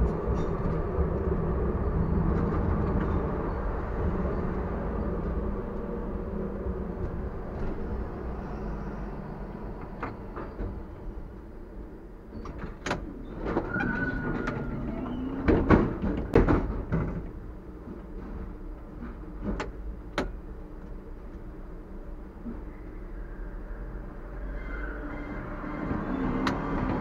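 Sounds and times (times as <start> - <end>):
tram doors clunking and rattling: 0.0 - 22.8, 24.0 - 27.0
tram brakes squealing: 1.8 - 5.2, 8.1 - 11.4, 13.1 - 15.7, 22.4 - 27.0.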